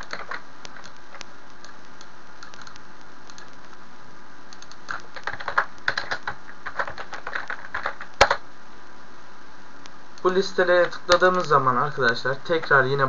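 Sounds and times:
keyboard typing: 0.0s - 3.8s, 4.5s - 8.4s
steady hiss: 0.0s - 13.0s.

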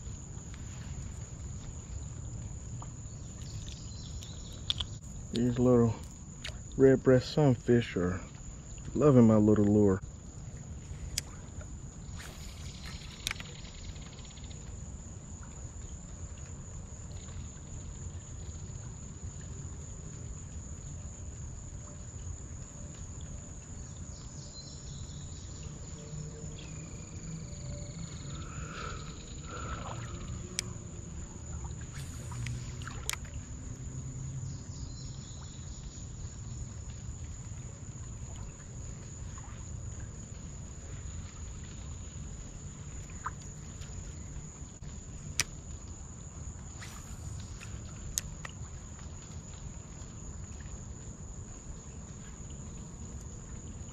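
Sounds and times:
high-pitched insect buzz: 12.0s - 14.6s, 24.5s - 33.3s, 46.6s - 48.4s.

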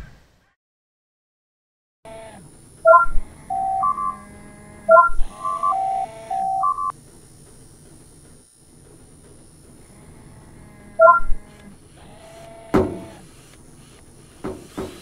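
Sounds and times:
electronic beeps at stepped pitches: 2.9s - 4.2s, 4.9s - 6.9s, 11.0s - 11.4s.

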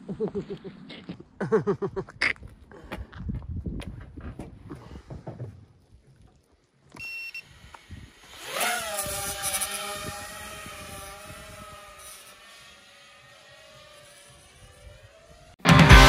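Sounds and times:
drone motors whining: 6.9s - 16.0s
short electronic beep: 7.0s - 7.4s.

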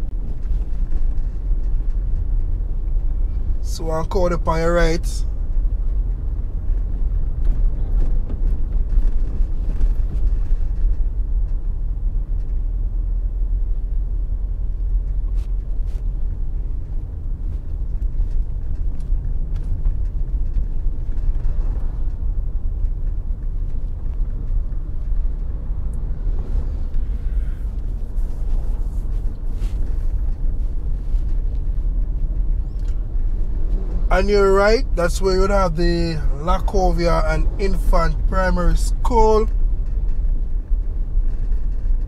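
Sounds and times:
car engine and tyre rumble: 0.0s - 42.0s.

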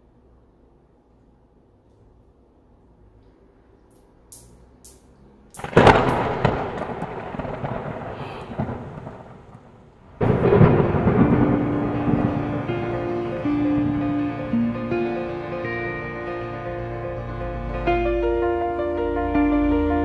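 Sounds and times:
loud music: 10.2s - 20.0s.

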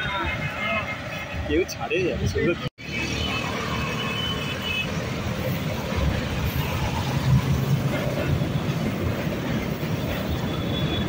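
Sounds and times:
road traffic: 0.0s - 11.0s
electric train rolling by: 2.8s - 11.0s.

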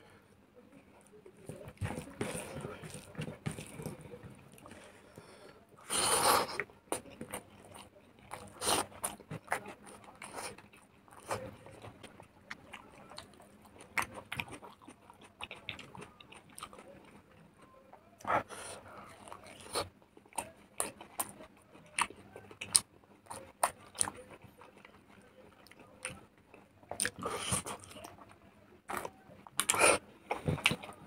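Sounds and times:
chewing and mouth smacks: 6.6s - 17.4s, 19.0s - 28.3s, 28.9s - 31.0s.

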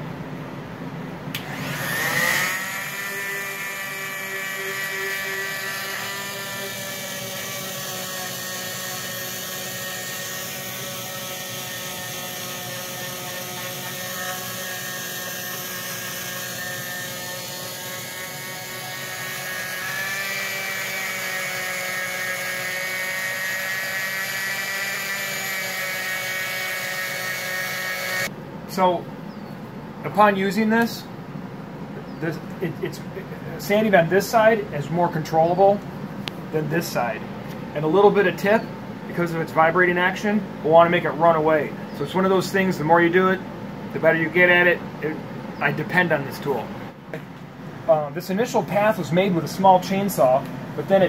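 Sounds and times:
air filter humming: 0.0s - 25.4s
oscillating tool sanding wood: 1.5s - 28.3s.

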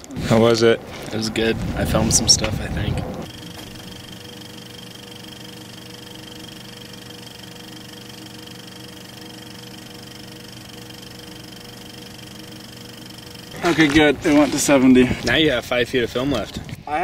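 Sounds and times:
mechanical whirr: 0.0s - 16.8s.

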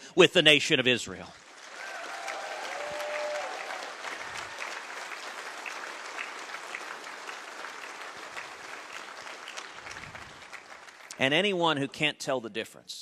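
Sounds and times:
audience applauding: 1.4s - 11.4s.

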